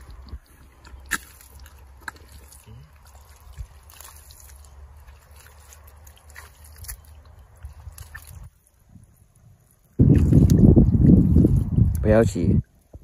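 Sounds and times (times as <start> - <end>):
small wet clicks and pops: 0.0 - 8.5, 11.4 - 12.1
hands squelching in wet mud: 0.0 - 12.1.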